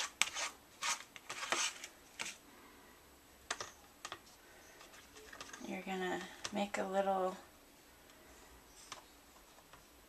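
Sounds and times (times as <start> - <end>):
plastic spoon scraping paper plate: 0.0 - 2.4.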